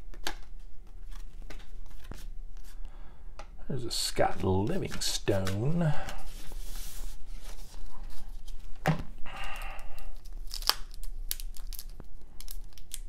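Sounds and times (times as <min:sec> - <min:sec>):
wrapper tearing and crinkling: 0:09.9 - 0:13.0.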